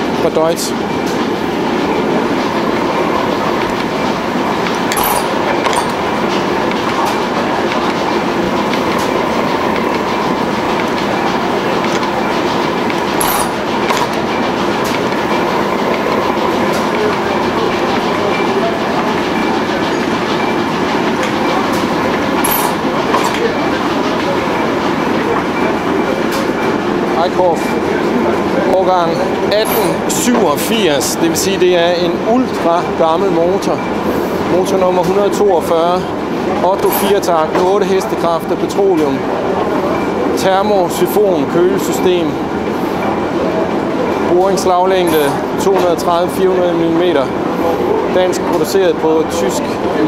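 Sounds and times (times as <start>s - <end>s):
engine mechanical clatter: 0.1s - 50.0s
sharp engine clicks: 4.6s - 18.6s.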